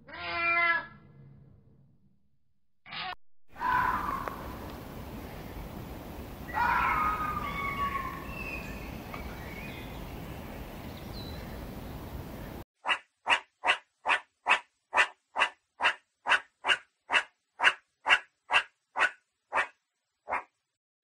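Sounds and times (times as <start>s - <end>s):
hyena cry: 3.6s - 4.4s, 6.5s - 8.4s
steady hiss: 4.0s - 12.6s.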